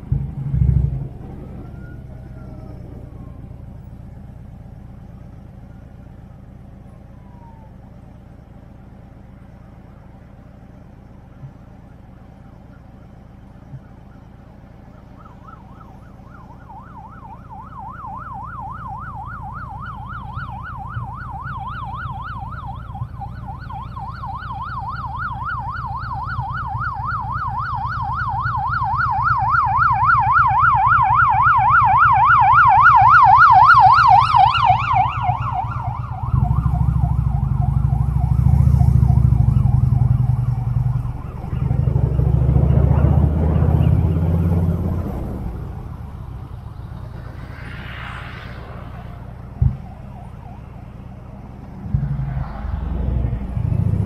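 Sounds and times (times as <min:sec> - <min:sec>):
siren warbling: 0:00.4 - 0:05.8, 0:07.0 - 0:07.8, 0:13.7 - 0:54.0
loud low rumble: 0:39.9 - 0:54.0.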